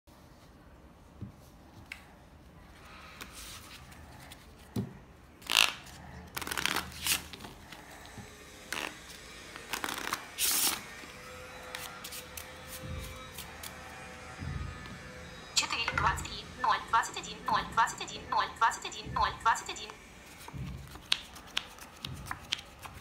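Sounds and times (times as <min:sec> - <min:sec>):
playing cards being shuffled: 0:05.4 - 0:07.5, 0:09.6 - 0:10.8, 0:20.2 - 0:23.0.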